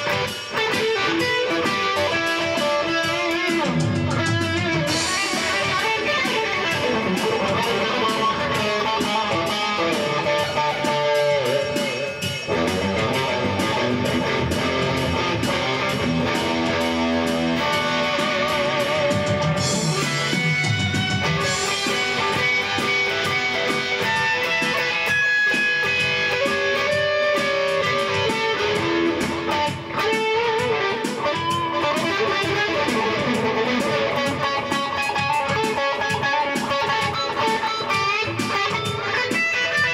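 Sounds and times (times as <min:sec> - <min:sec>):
rock music with electric guitar: 0:00.0 - 0:39.9.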